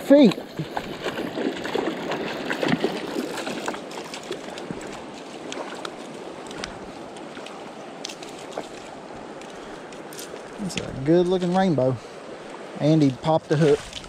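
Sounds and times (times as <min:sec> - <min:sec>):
fish splashing in water: 0:00.0 - 0:09.0
running creek water: 0:00.0 - 0:14.0.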